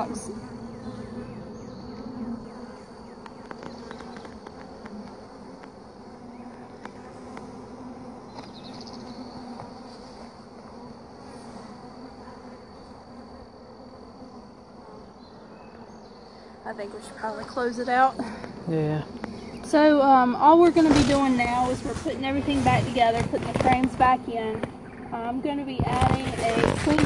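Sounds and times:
bees buzzing: 0:00.0 - 0:27.0.

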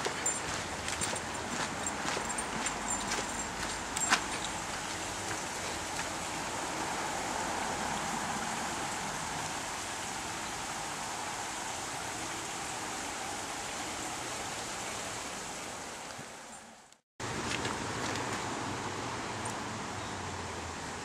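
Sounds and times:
water rushing over stones: 0:00.0 - 0:16.1.

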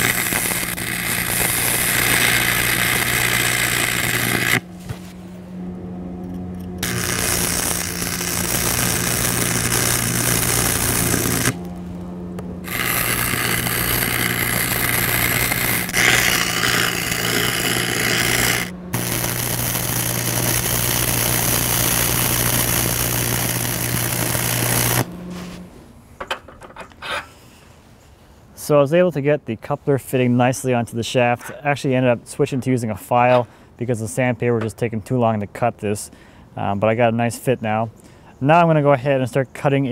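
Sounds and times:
welding arc crackling sizzle: 0:00.0 - 0:05.0, 0:06.2 - 0:25.6
low electrical hum: 0:00.0 - 0:39.9.

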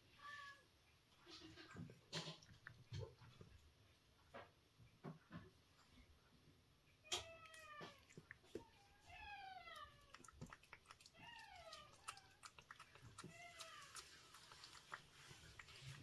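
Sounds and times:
cat licking and chewing wet food: 0:01.1 - 0:04.3, 0:07.0 - 0:16.0
cat meowing: 0:07.0 - 0:10.3, 0:11.1 - 0:12.5.

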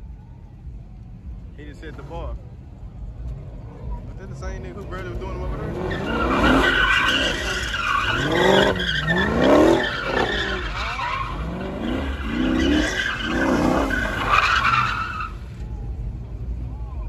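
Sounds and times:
car engine revving: 0:01.7 - 0:15.6
tyres squealing: 0:05.5 - 0:15.6.

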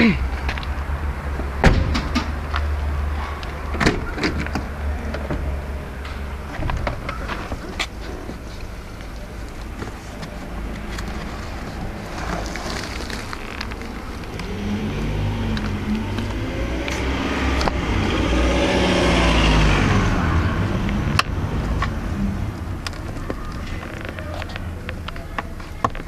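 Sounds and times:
floor mats rubbing and clicking: 0:04.2 - 0:14.6
car engine revving: 0:13.8 - 0:24.7.

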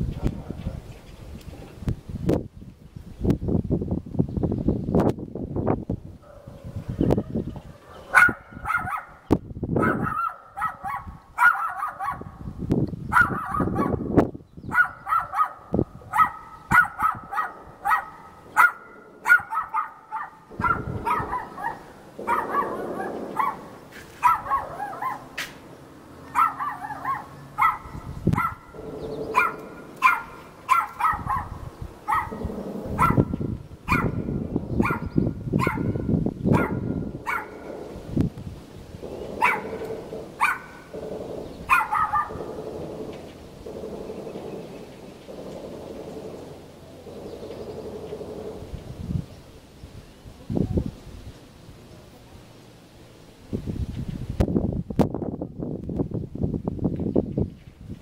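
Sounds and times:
dog barking: 0:06.2 - 0:09.2, 0:09.8 - 0:12.4, 0:13.1 - 0:14.1, 0:14.7 - 0:25.4, 0:26.3 - 0:34.2, 0:34.8 - 0:37.8, 0:39.4 - 0:40.8, 0:41.7 - 0:42.5.

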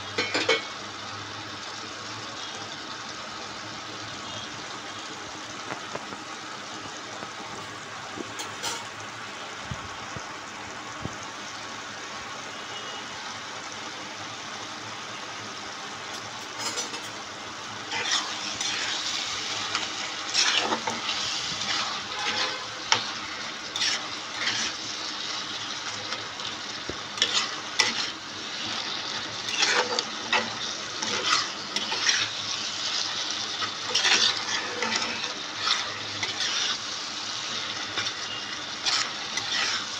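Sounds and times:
curry sizzling in a wok: 0:00.0 - 0:39.9
spatula scraping and stirring: 0:17.8 - 0:39.9.

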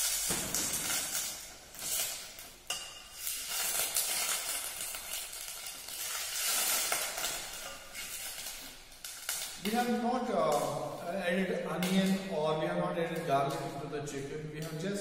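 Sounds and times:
stock sizzling in a pan: 0:00.0 - 0:11.0.

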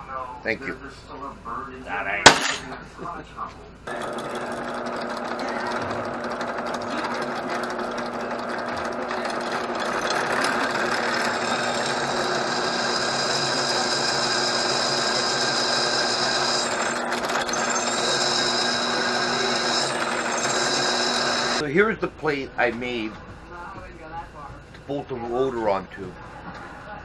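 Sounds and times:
drill press running: 0:03.9 - 0:21.6
high whine of bit cutting metal: 0:03.9 - 0:21.6.

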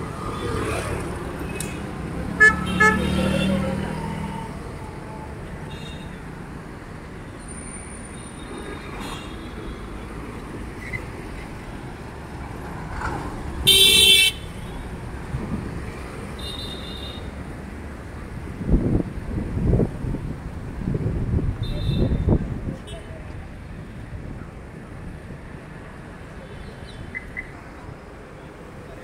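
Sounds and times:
street traffic rumble: 0:00.0 - 0:29.0
vehicle horns: 0:02.3 - 0:04.0, 0:13.6 - 0:14.8, 0:16.4 - 0:17.3, 0:21.6 - 0:23.1.

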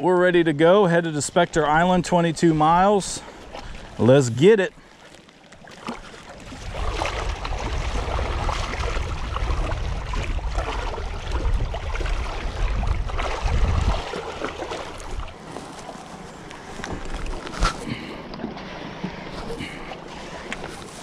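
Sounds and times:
water on shore: 0:00.0 - 0:21.0
wind on microphone: 0:06.4 - 0:15.4.

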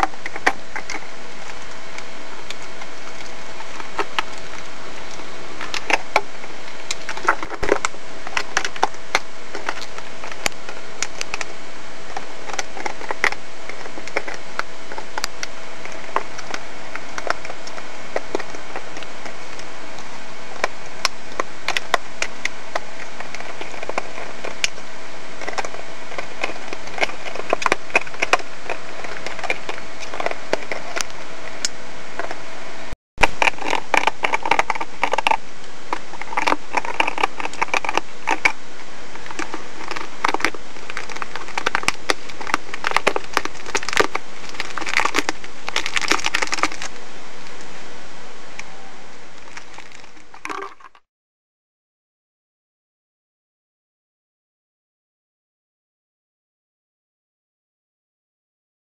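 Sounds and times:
dog chewing plastic bottle: 0:20.6 - 0:24.8, 0:25.4 - 0:31.2, 0:33.2 - 0:46.9, 0:49.4 - 0:51.0.

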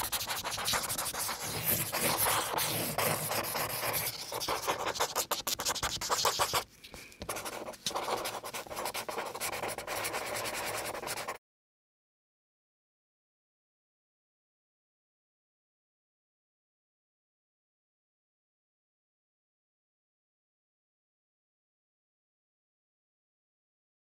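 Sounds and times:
pen scratching on paper: 0:00.0 - 0:11.4.

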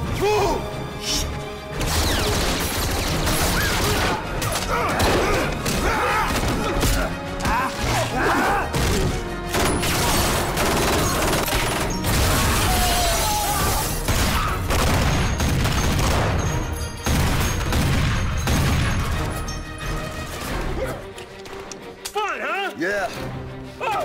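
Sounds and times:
film score music: 0:00.0 - 0:24.0
gunshots: 0:01.8 - 0:08.0, 0:08.7 - 0:13.0, 0:13.7 - 0:19.4.

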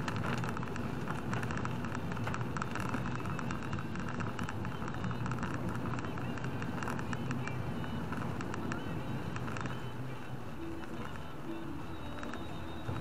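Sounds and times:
car engine and tyres rumbling: 0:00.0 - 0:13.0
heavy rain on car windshield: 0:00.0 - 0:13.0.

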